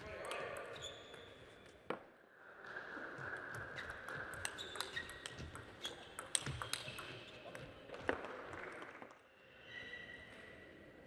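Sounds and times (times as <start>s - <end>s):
table tennis ball clicking: 4.0s - 7.6s.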